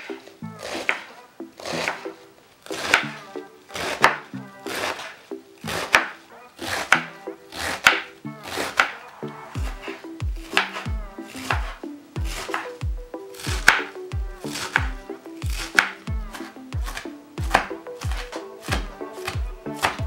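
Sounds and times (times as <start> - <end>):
knife slicing cabbage on wooden board: 0.6 - 2.0, 3.8 - 5.1, 5.7 - 8.9, 12.3 - 12.8, 14.5 - 14.8, 15.5 - 20.0.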